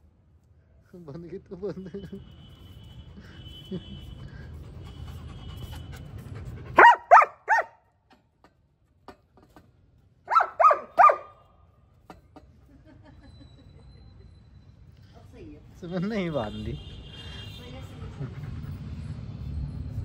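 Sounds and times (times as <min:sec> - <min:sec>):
dog barking: 0:06.8 - 0:07.8, 0:10.3 - 0:11.4.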